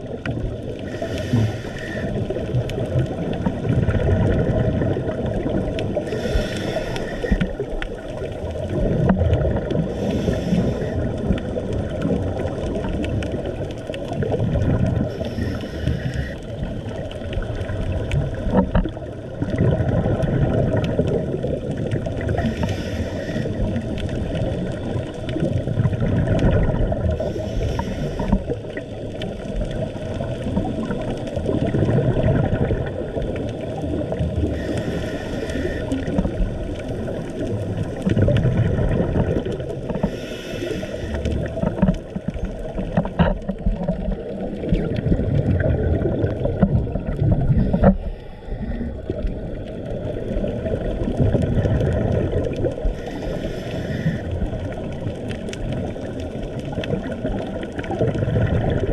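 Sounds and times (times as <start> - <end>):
underwater rumble of exhaled bubbles: 0.0 - 58.9
faint clicks: 5.7 - 19.0, 33.2 - 45.1.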